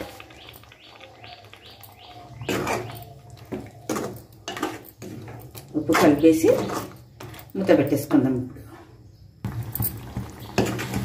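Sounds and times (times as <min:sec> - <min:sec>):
faint high chirping: 0:00.0 - 0:04.4
metal spatula scraping and stirring: 0:02.4 - 0:11.0.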